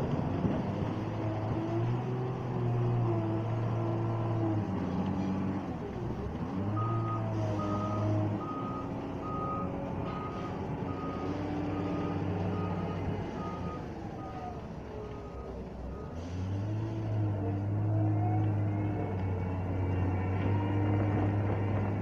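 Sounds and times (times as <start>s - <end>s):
diesel engine revving: 0.0s - 22.0s
reversing alarm beeping: 6.7s - 16.2s.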